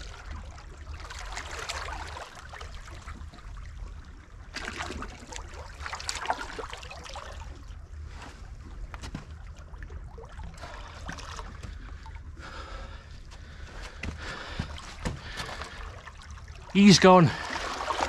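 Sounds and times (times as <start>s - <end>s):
water splashing around hands: 13.8s - 18.0s.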